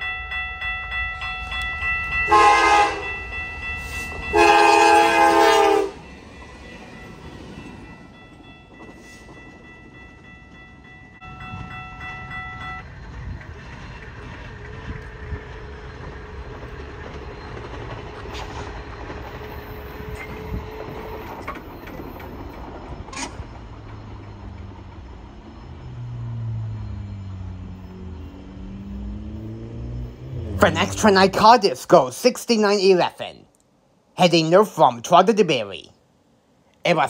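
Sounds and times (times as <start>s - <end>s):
locomotive engine and wheel rumble: 0.0s - 31.9s
wheel clicks over rail joints: 16.5s - 25.0s.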